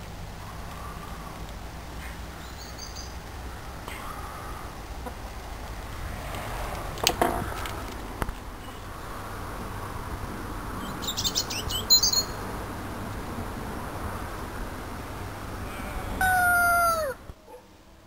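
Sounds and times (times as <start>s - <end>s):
low outdoor rumble: 0.0s - 18.0s
small bird chirping: 2.0s - 3.2s, 10.8s - 12.4s.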